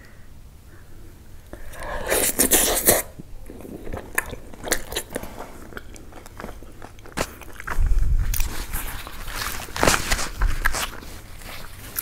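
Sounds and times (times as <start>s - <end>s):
wet chewing: 1.5s - 12.0s.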